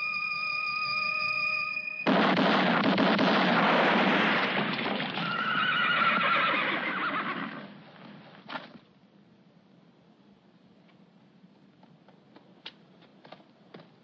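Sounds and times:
wavering theremin-like music: 0:00.0 - 0:02.1
horse whinny: 0:05.2 - 0:07.7.

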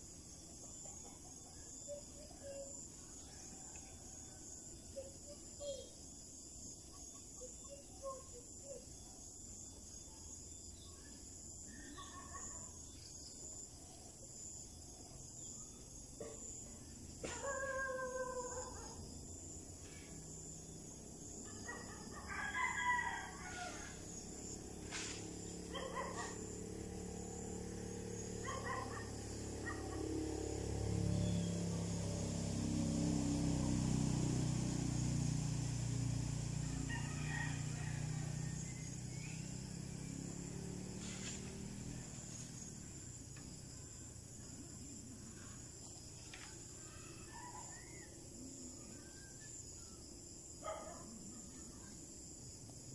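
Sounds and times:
rooster crowing: 0:21.6 - 0:24.6, 0:36.4 - 0:39.3.

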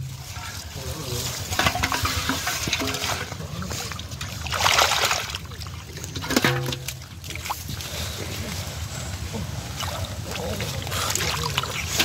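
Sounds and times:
hands splashing in muddy water: 0:01.4 - 0:08.6.

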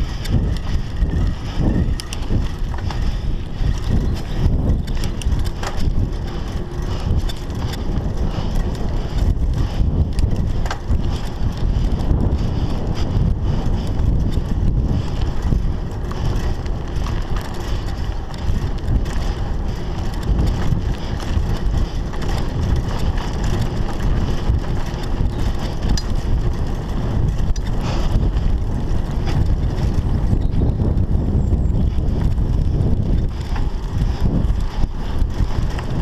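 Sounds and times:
bike rattles and clicks: 0:00.0 - 0:36.0
bike tyre rumble: 0:00.0 - 0:36.0
wind on microphone: 0:00.0 - 0:36.0.

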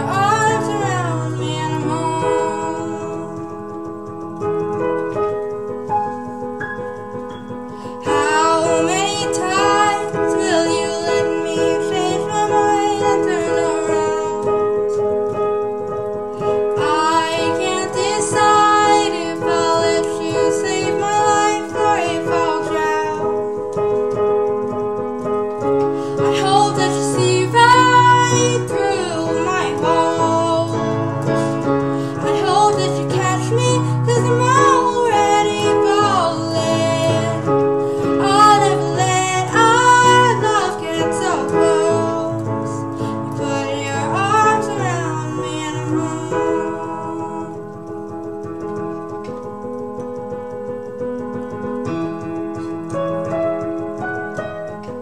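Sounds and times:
woman singing pop ballad: 0:00.0 - 0:03.3, 0:07.8 - 0:14.6, 0:16.7 - 0:23.4, 0:26.1 - 0:31.0, 0:32.0 - 0:47.7
digital piano playing: 0:00.0 - 0:55.0.

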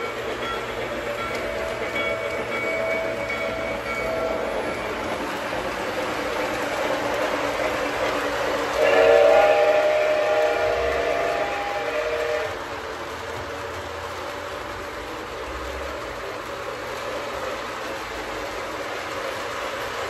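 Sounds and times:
model train wheels rumbling on rails: 0:00.0 - 0:20.0
loud train horn chord: 0:08.7 - 0:12.6.

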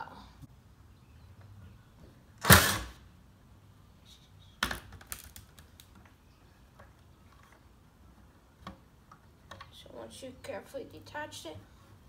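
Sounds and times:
small clicks and knocks: 0:04.6 - 0:07.7.

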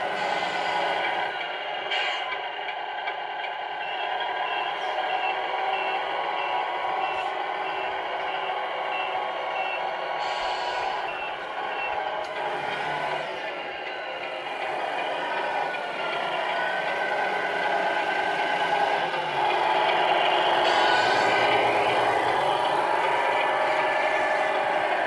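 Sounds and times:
diesel truck engine sound: 0:00.0 - 0:25.0
reversing alarm beeping: 0:03.7 - 0:25.0
air hiss: 0:10.2 - 0:11.0.

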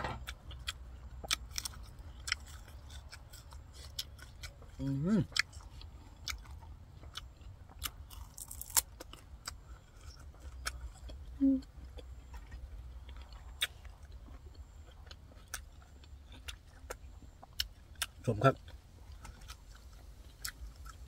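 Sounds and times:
crunchy chewing: 0:00.0 - 0:21.0
person humming: 0:11.4 - 0:11.7.

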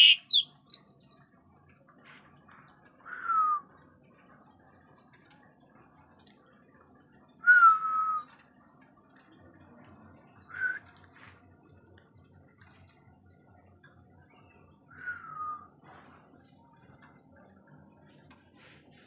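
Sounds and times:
bird whistled calls: 0:00.0 - 0:01.2.

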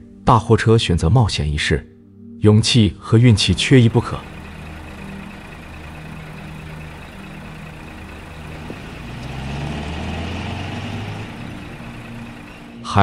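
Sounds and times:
diesel truck engine running: 0:03.4 - 0:13.0.

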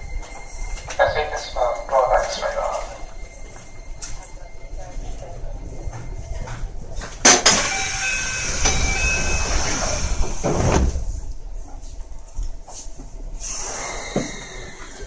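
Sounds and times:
doors hissing: 0:05.0 - 0:11.4, 0:13.4 - 0:15.0
train door clunk: 0:05.7 - 0:11.4.

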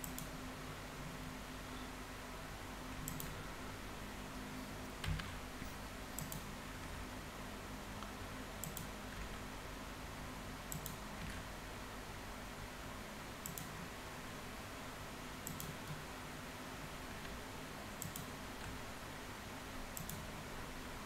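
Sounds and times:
faint steady hum: 0:00.0 - 0:21.0
mouse and keyboard clicks: 0:03.0 - 0:03.4, 0:05.0 - 0:06.5, 0:08.6 - 0:09.3, 0:10.7 - 0:11.4, 0:13.4 - 0:13.8, 0:15.4 - 0:16.0, 0:18.0 - 0:18.8, 0:20.0 - 0:20.2.

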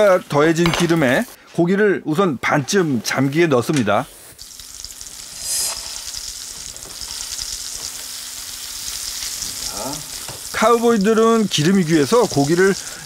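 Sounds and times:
meat sizzling in hot oil: 0:04.3 - 0:13.0.

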